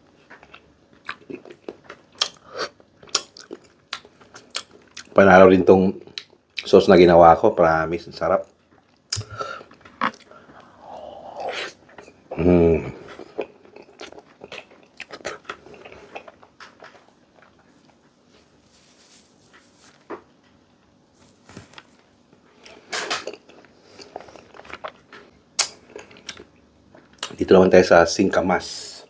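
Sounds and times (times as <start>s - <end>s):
chewing crunchy fruit: 0.2s - 5.2s, 8.4s - 18.3s, 22.6s - 27.4s
person humming: 12.3s - 13.0s.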